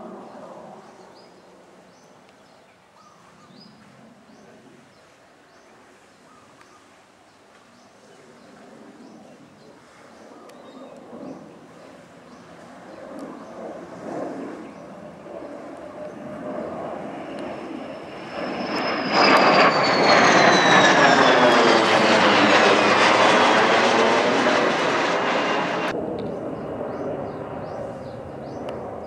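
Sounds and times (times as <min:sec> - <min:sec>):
fighter jet passing overhead: 0:00.0 - 0:02.0, 0:08.0 - 0:29.0
faint aircraft sound: 0:00.0 - 0:29.0.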